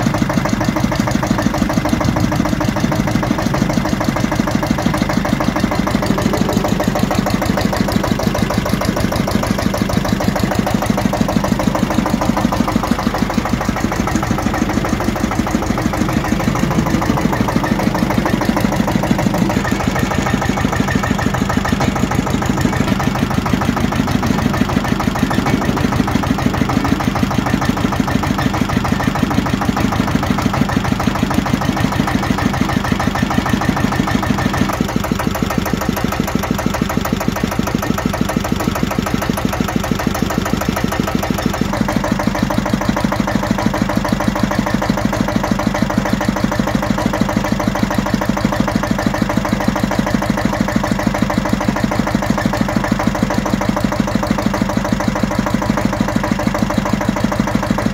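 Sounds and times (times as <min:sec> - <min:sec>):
diesel stationary engine running: 0:00.0 - 0:57.9.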